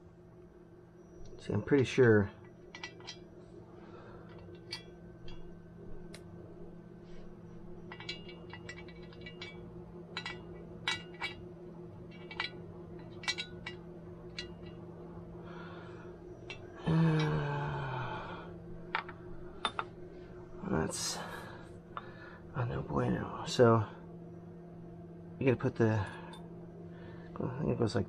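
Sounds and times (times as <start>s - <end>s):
steady low hum: 0.0s - 28.0s
metal parts clinking: 2.5s - 3.2s, 4.2s - 5.5s, 7.8s - 14.8s.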